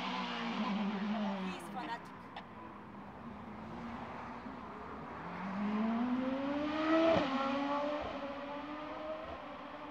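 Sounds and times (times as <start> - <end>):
race car engine accelerating: 5.2 - 9.9.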